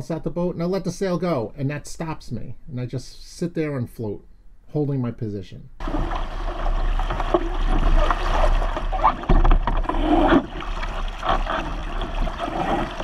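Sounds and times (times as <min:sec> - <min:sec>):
water splashing along boat hull: 0:05.8 - 0:13.0.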